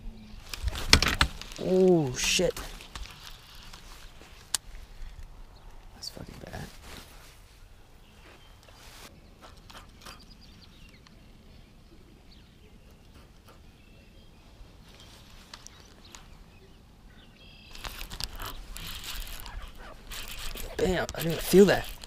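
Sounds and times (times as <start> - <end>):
rustling handling noise: 0.4 - 5.2, 6.3 - 9.1, 17.7 - 22.0
bird chirps: 8.0 - 22.0.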